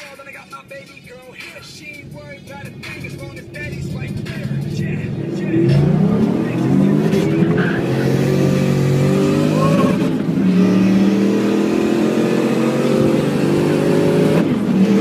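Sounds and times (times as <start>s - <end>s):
car engine accelerating from cabin: 3.2s - 15.0s.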